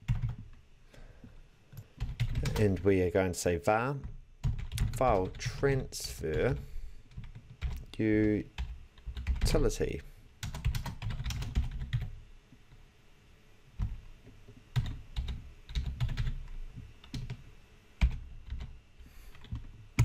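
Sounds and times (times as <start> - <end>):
typing on a computer keyboard: 0.0 - 0.5, 2.0 - 2.8, 4.0 - 5.4, 6.5 - 9.6, 10.4 - 12.1, 14.7 - 16.4, 17.0 - 17.4, 18.0 - 18.7, 19.3 - 20.0.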